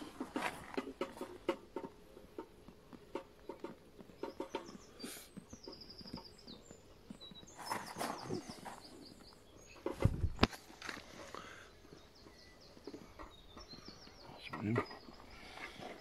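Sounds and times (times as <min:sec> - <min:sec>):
knocks and rustles of weigh sling: 0:00.0 - 0:11.5.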